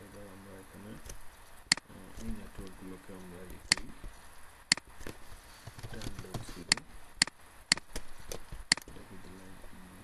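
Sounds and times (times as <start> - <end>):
computer mouse click: 8.7 - 8.9.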